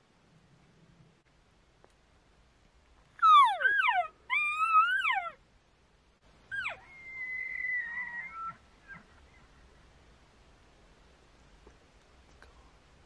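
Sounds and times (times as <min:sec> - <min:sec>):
elk squealing calls: 0:06.6 - 0:09.1.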